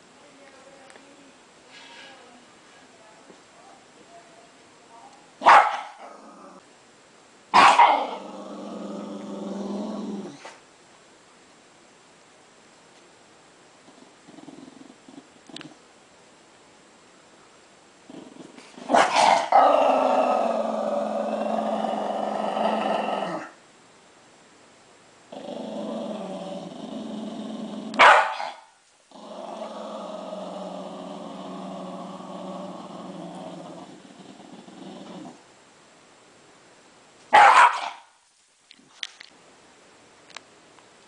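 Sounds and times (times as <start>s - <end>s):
small dog growling: 5.9s - 6.7s, 7.7s - 10.6s, 13.8s - 15.8s, 18.1s - 23.6s, 25.3s - 35.4s
dog loud outburst: 7.6s - 8.2s, 18.8s - 19.7s, 27.9s - 28.7s, 37.3s - 38.2s.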